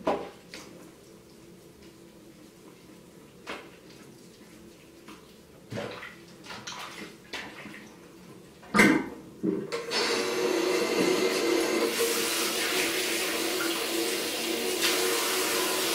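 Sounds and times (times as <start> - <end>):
water splashing in a sink: 3.5 - 9.1, 11.0 - 15.9
tap water running into sink: 10.6 - 15.9.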